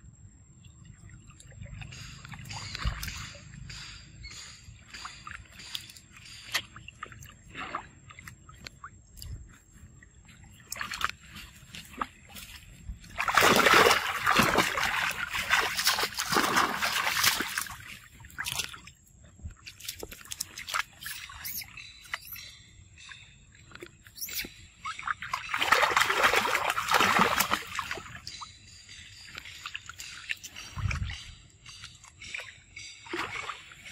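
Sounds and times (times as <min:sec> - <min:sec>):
monkeys splashing in water: 0:10.6 - 0:18.9, 0:24.1 - 0:28.4.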